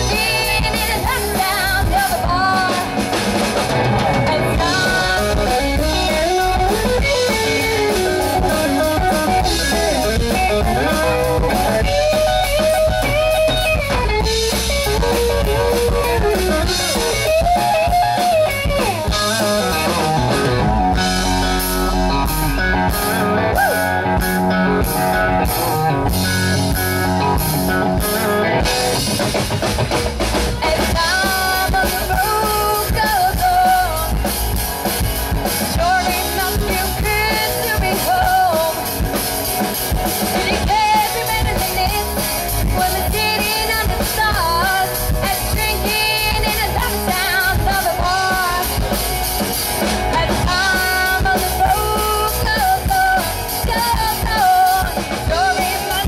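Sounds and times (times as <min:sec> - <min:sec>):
woman singing: 0:00.0 - 0:03.1, 0:04.1 - 0:06.8, 0:30.6 - 0:34.3, 0:35.7 - 0:39.0, 0:40.2 - 0:49.0, 0:50.0 - 0:56.0
bass guitar: 0:00.0 - 0:56.0
drum kit: 0:00.0 - 0:56.0
electric guitar: 0:00.0 - 0:56.0.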